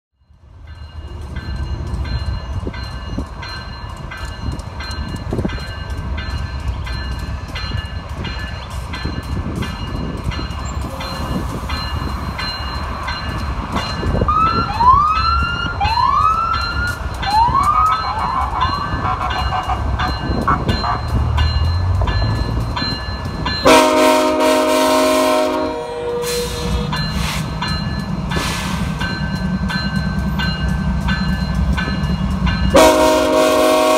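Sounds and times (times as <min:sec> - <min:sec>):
train rumbling: 0:00.2 - 0:33.9
rail clicks: 0:00.4 - 0:33.9
locomotive air horn: 0:17.7 - 0:19.9, 0:20.5 - 0:21.1, 0:23.6 - 0:26.9, 0:32.7 - 0:33.9.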